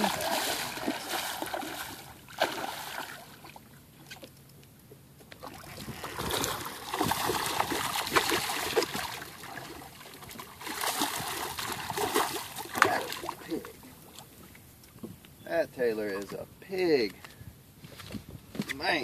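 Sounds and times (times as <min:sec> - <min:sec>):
fish splashing in water: 0:00.0 - 0:03.7, 0:05.4 - 0:13.6.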